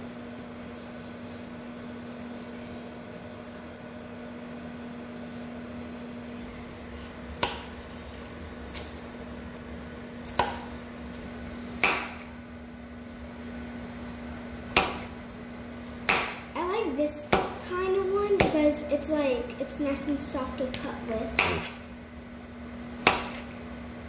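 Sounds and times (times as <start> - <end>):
steady low hum: 0.0 - 24.0
knife chopping on cutting board: 7.0 - 7.7, 10.2 - 10.7, 14.7 - 15.1, 16.1 - 16.4, 18.4 - 18.6, 21.3 - 21.8, 23.0 - 23.4.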